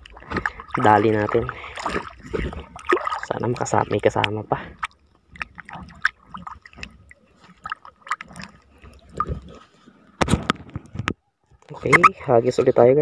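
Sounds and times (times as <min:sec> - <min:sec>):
seawater splashing and dripping: 0:00.0 - 0:10.2.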